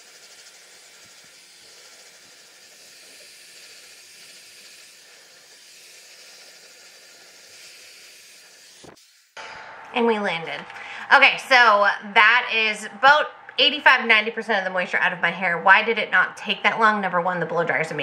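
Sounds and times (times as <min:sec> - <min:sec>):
hair dryer blowing: 0:00.0 - 0:09.5.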